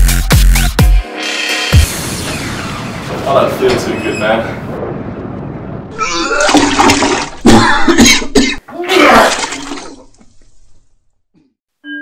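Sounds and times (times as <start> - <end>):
person retching and gagging: 6.0 - 10.3.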